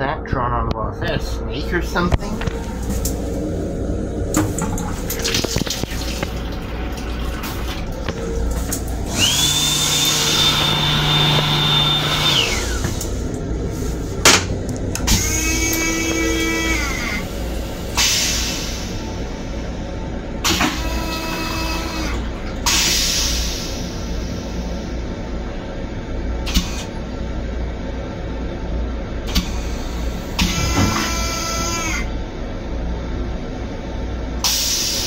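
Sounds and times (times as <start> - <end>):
train low rumble: 0.0 - 9.4, 12.4 - 21.0, 21.6 - 31.0
steady high whine: 0.0 - 35.0
faucet water running into basin: 4.6 - 8.0.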